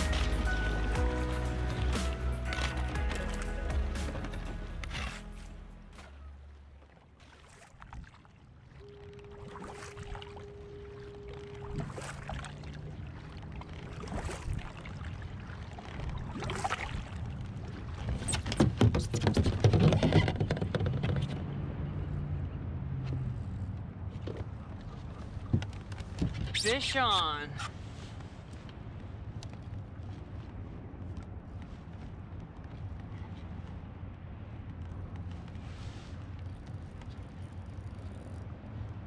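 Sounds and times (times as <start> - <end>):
paddle swishing through water: 0.0 - 21.4, 23.0 - 39.0
paddle knocking on plastic kayak: 18.5 - 21.4.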